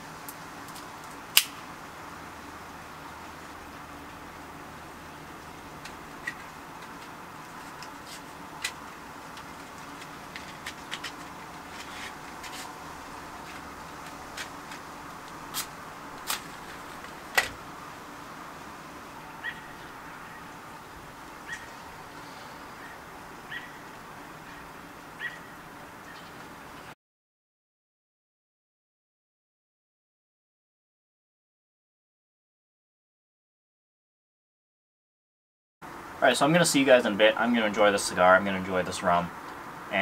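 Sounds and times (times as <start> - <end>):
rain falling: 0.0 - 26.9.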